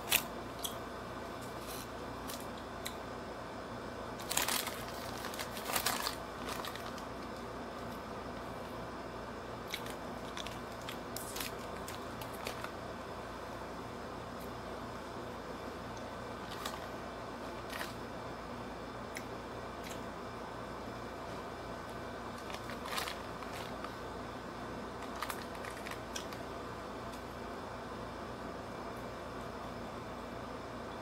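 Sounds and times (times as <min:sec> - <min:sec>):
paper wrapping crinkling and tearing: 0:04.2 - 0:07.5, 0:09.7 - 0:12.7, 0:16.4 - 0:16.9, 0:22.4 - 0:23.9, 0:25.0 - 0:26.4.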